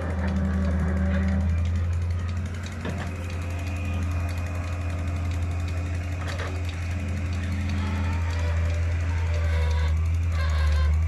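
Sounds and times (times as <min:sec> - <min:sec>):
diesel engines droning: 0:00.0 - 0:11.0
excavator bucket loading soil: 0:00.0 - 0:11.0.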